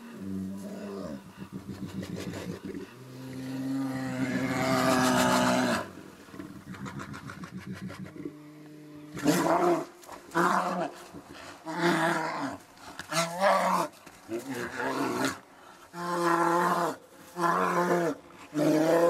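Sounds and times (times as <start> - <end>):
large animal roaring: 0.2 - 8.4.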